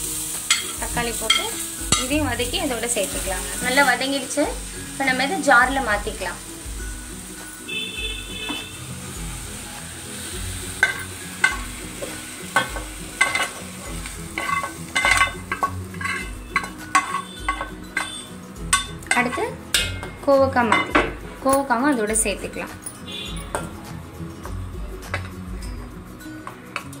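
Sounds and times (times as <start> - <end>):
faint background music: 0.0 - 27.0
metal spoon scraping a pan: 10.7 - 20.1
ringing metal clinks: 22.8 - 23.7.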